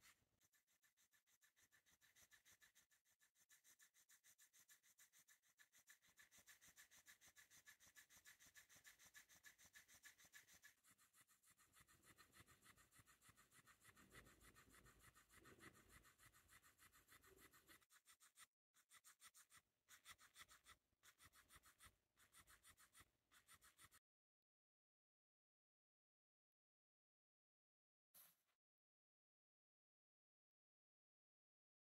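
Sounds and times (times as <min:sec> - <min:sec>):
toy motor buzzing and ticking: 0:04.8 - 0:24.0.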